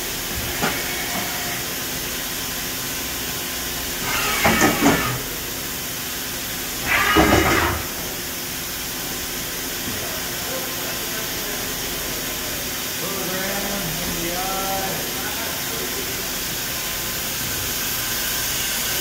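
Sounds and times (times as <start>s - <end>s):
machine steady hum: 0.0s - 19.0s
machine motor and slide noise: 0.3s - 1.8s, 4.0s - 5.4s, 6.8s - 8.1s.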